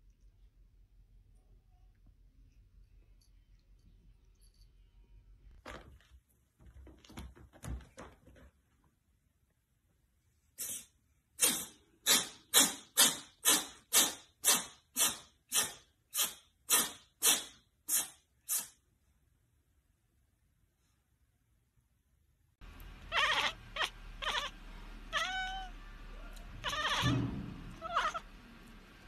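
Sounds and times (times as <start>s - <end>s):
cat sneezing: 10.6s - 18.8s.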